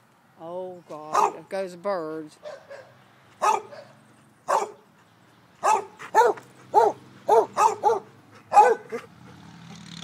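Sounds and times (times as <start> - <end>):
dog barking: 1.1 - 1.5, 2.4 - 4.8, 5.6 - 9.2.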